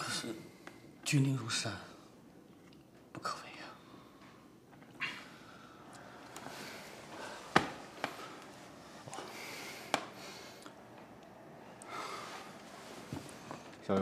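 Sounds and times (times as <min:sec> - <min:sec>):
faint breathing: 0:03.6 - 0:10.9, 0:11.6 - 0:13.8.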